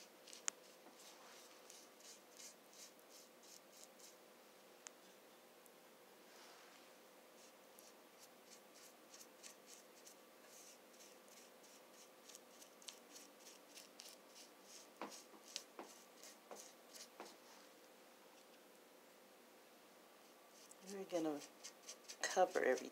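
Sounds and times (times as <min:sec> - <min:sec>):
paintbrush swishes: 0:00.2 - 0:04.1, 0:13.4 - 0:17.6
brush taps: 0:15.0 - 0:17.4.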